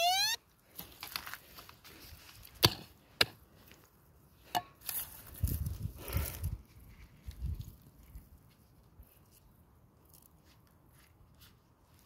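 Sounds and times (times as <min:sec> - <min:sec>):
digging tool striking stony soil: 0:02.5 - 0:03.4.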